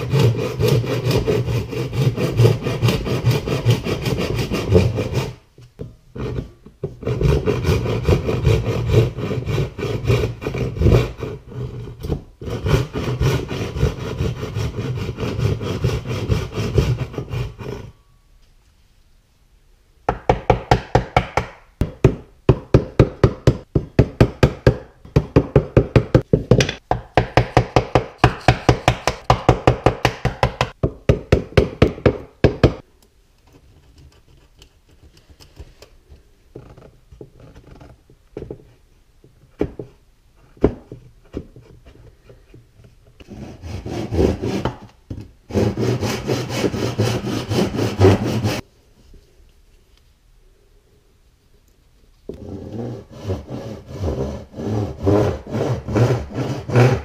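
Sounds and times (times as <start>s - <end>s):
hand tool scraping wood: 0.0s - 18.0s, 39.8s - 48.6s, 52.3s - 57.0s.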